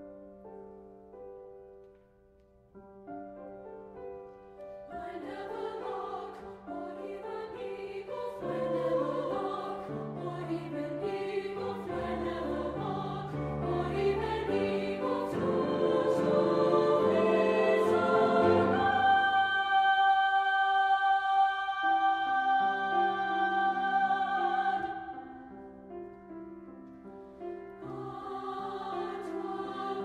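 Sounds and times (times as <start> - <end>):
grand piano accompaniment: 0.0 - 30.0
choir of high voices singing: 4.9 - 25.8, 27.8 - 30.0.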